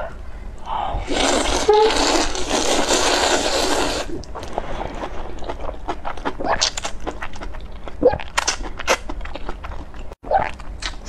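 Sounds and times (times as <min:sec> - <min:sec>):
person slurping noodles: 0:01.0 - 0:04.2
wet chewing and smacking: 0:04.2 - 0:11.0.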